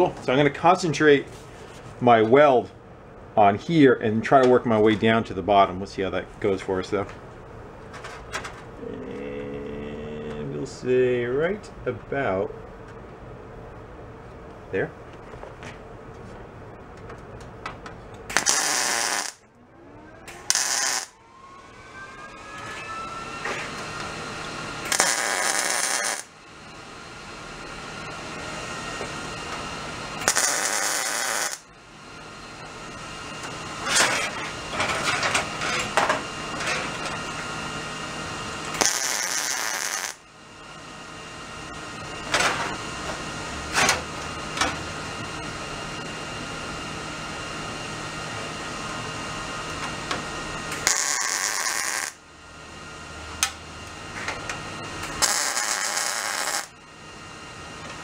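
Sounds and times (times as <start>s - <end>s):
steady hum and hiss: 0.0s - 58.0s
welder arc crackling: 18.3s - 19.5s, 20.3s - 21.2s, 24.8s - 26.4s, 30.2s - 31.7s, 38.7s - 40.2s, 50.7s - 52.2s, 54.8s - 56.8s.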